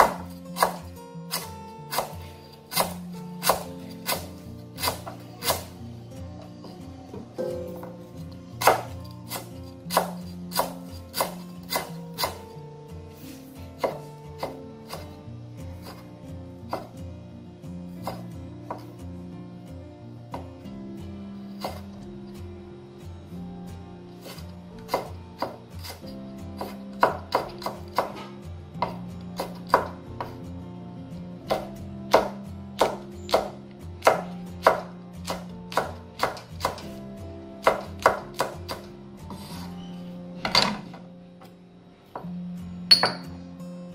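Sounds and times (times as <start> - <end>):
knife chopping on wooden board: 0.0 - 5.7, 8.6 - 12.5, 13.8 - 15.2, 16.7 - 17.0, 18.0 - 18.9, 21.6 - 21.9, 24.2 - 30.4, 31.5 - 37.0, 37.6 - 39.5
background music: 0.0 - 43.9.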